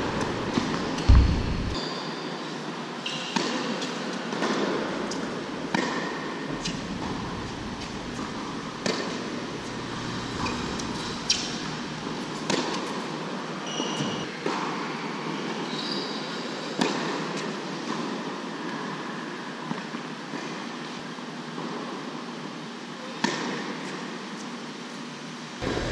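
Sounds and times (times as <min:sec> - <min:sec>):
fans humming: 0:00.0 - 0:01.8, 0:06.4 - 0:12.6, 0:25.6 - 0:25.9
shoe squeaks on court: 0:13.6 - 0:14.3.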